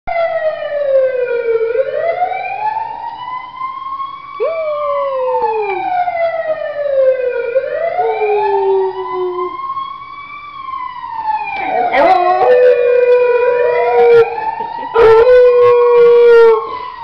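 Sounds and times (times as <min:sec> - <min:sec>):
ambulance wail siren: 0:00.1 - 0:17.0
dog howling: 0:04.4 - 0:05.9, 0:08.0 - 0:09.6, 0:11.6 - 0:16.8.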